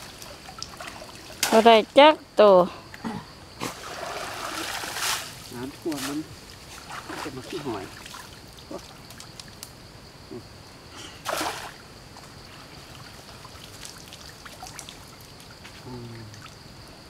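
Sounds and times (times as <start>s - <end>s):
small knocks and drips: 0.0s - 1.7s, 6.8s - 9.7s, 12.1s - 16.6s
water trickling and splashing: 0.0s - 2.1s, 3.6s - 9.9s, 11.2s - 16.8s
loud splash: 3.7s - 6.2s, 11.2s - 11.8s.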